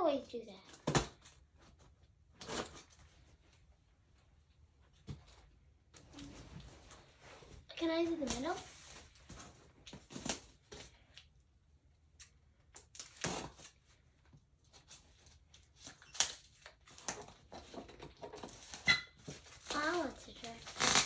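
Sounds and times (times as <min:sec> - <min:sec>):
scissors cutting packing tape: 0:12.8 - 0:13.8, 0:19.5 - 0:21.0.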